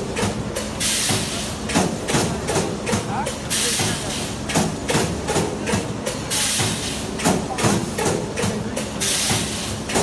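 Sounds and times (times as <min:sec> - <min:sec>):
pneumatic cylinder hiss: 0:00.8 - 0:01.6, 0:03.5 - 0:04.4, 0:06.1 - 0:07.1, 0:09.0 - 0:09.8.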